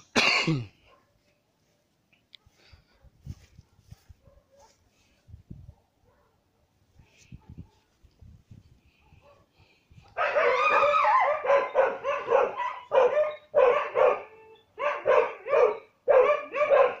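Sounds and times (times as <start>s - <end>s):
dog barking and yelping: 3.0s - 4.8s, 5.7s - 6.7s, 9.0s - 17.0s.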